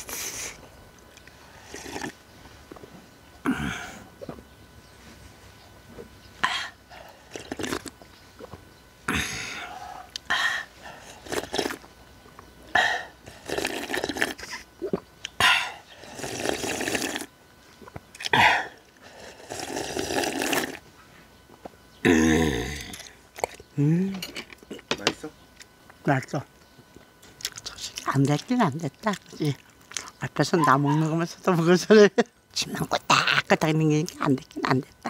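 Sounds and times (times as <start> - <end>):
person sipping and swallowing soup: 1.2 - 2.2, 6.9 - 10.3, 10.9 - 11.9, 12.9 - 15.4, 16.0 - 20.8, 22.1 - 23.9.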